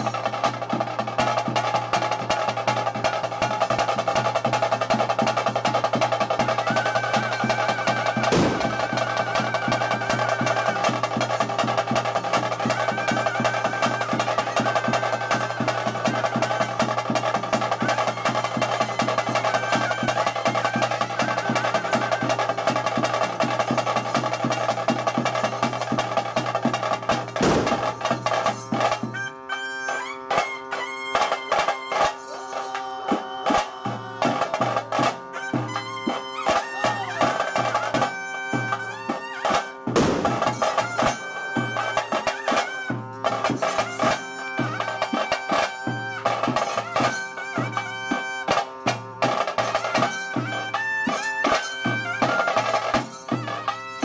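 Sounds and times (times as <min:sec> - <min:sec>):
held sustained tones: 0:07.0 - 0:10.9
fast drum rolls: 0:08.2 - 0:09.4, 0:26.6 - 0:28.4.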